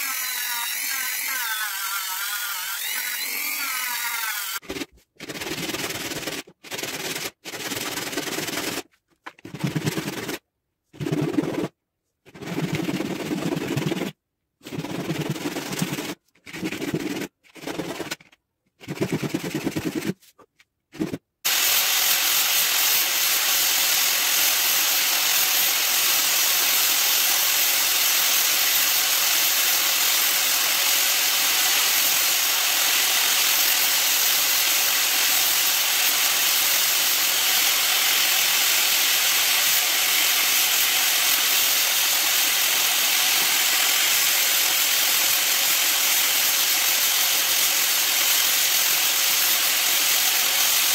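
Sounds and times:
electric grinder grinding hiss: 0.0s - 4.6s, 21.5s - 50.9s
resin rubbed on sandpaper: 12.4s - 18.2s.

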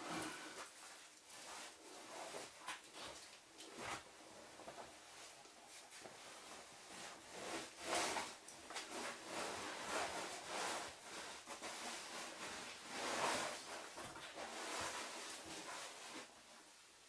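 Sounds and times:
clothing scraping against rock: 6.4s - 16.3s.

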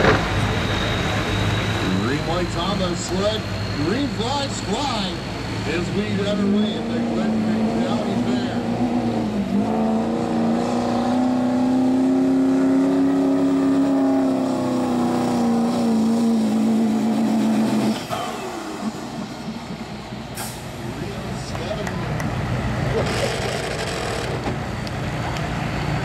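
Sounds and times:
pickup diesel engine revving hard: 5.7s - 21.3s.

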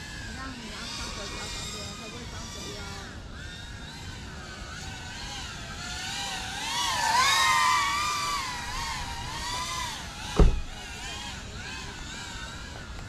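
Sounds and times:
drone propellers whining: 0.0s - 13.0s
low thump: 10.4s - 10.7s.

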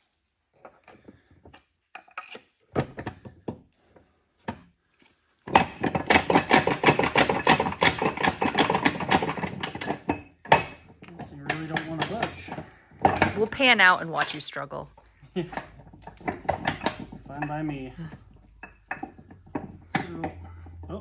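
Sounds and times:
metal gears clunking and rattling: 5.5s - 13.4s, 15.5s - 17.8s.

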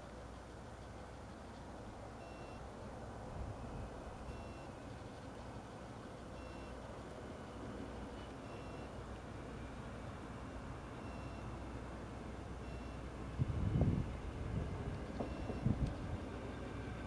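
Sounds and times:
diesel train hum: 0.0s - 17.0s
electronic warning beep: 2.2s - 2.7s, 3.6s - 4.9s, 6.4s - 6.8s, 8.4s - 9.0s, 11.0s - 11.7s, 12.6s - 13.1s, 15.0s - 15.8s.

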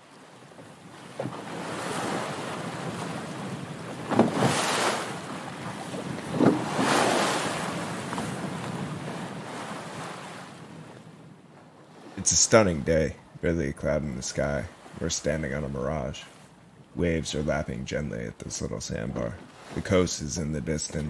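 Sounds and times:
waves lapping on sandy shore: 0.0s - 11.0s, 19.2s - 20.3s.

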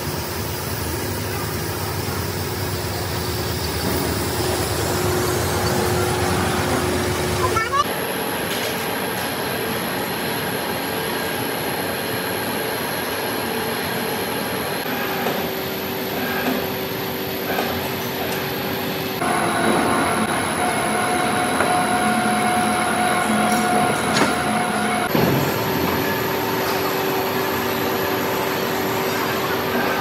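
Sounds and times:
machine tool running: 0.0s - 7.8s, 14.8s - 30.0s.

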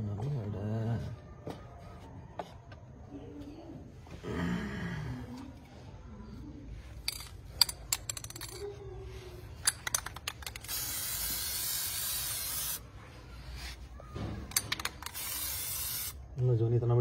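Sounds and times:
spray can rattling clicks: 9.6s - 12.8s, 14.5s - 16.2s
spray paint hissing: 10.4s - 12.9s, 14.8s - 16.3s.

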